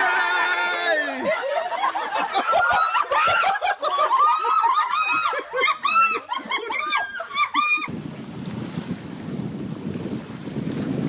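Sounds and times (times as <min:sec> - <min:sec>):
high-pitched laughter and squeals: 0:01.3 - 0:07.9
wind rumbling on microphone: 0:07.9 - 0:11.0.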